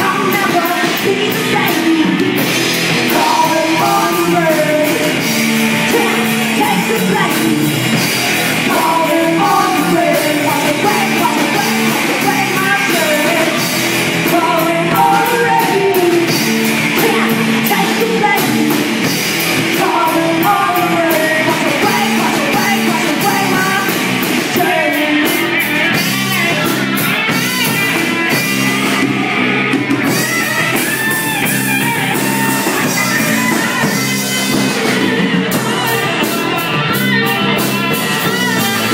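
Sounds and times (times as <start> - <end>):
woman singing: 0.0 - 2.4, 3.1 - 8.0, 8.6 - 25.9
drum kit: 0.0 - 38.9
electric bass: 0.0 - 38.9
electric lead guitar: 0.0 - 38.9.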